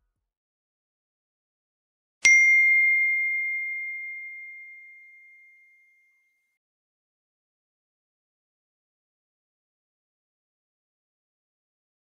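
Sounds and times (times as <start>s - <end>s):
notification bell ding: 2.2s - 6.3s.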